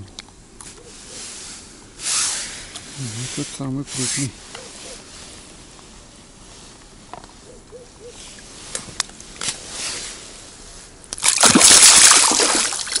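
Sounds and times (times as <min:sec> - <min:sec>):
fish splashing in water: 0:11.2 - 0:13.0.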